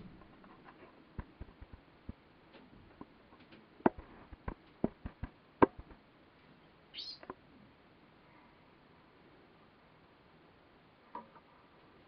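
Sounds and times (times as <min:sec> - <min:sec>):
canary clicks and taps in cage: 0:03.0 - 0:06.0.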